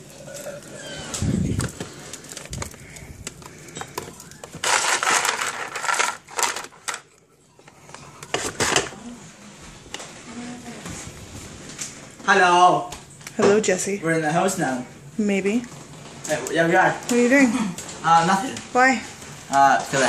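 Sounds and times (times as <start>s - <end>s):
ice cubes clattering: 0.0s - 7.1s.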